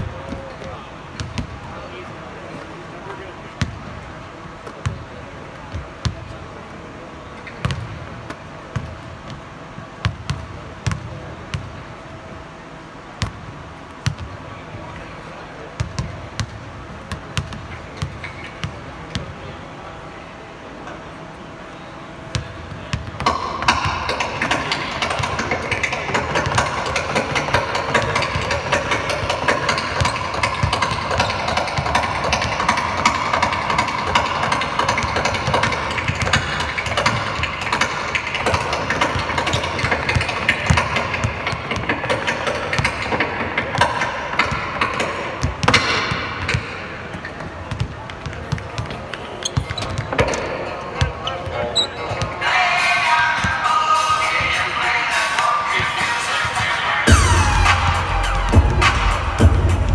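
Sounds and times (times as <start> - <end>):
loud continuous noise: 0.0 - 59.9
ball hitting rim: 0.1 - 1.6, 7.5 - 9.4, 15.8 - 19.3, 22.3 - 52.4
basketballs bouncing on hardwood: 0.1 - 1.7, 7.6 - 8.0, 22.3 - 50.3.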